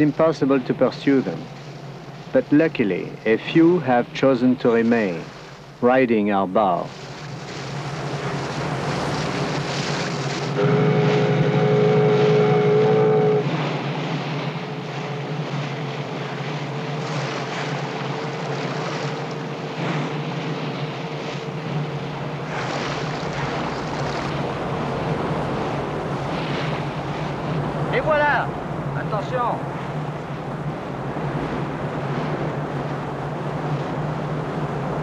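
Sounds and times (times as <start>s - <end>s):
water rushing past bow: 0.0s - 35.0s
low engine hum: 6.9s - 35.0s
loud held horn tone: 10.5s - 13.6s.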